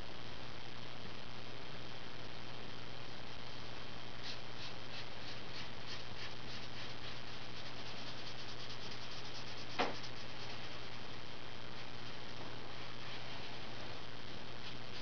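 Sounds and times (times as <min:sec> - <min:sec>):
low electrical hum: 0:00.0 - 0:15.0
marker scratching on paper: 0:04.2 - 0:11.0, 0:14.6 - 0:15.0.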